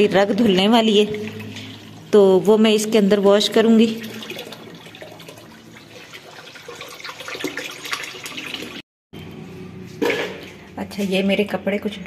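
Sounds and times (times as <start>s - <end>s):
water gushing into a plastic tub: 3.7s - 8.8s.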